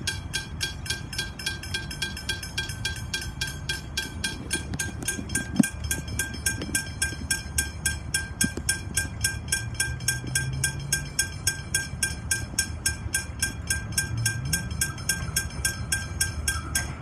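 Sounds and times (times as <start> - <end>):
level crossing bell ringing: 0.0 - 17.0.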